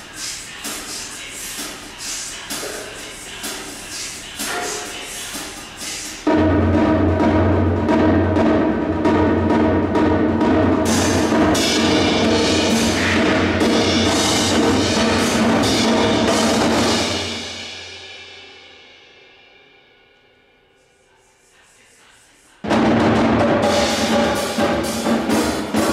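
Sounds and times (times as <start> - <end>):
percussion ensemble playing: 0.0 - 19.2, 22.6 - 25.9
cymbal crashes: 10.1 - 21.0, 22.7 - 25.9.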